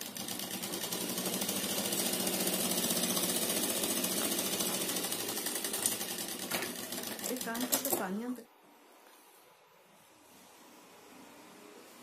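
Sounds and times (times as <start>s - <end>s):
sewing machine stitching: 0.0s - 8.1s.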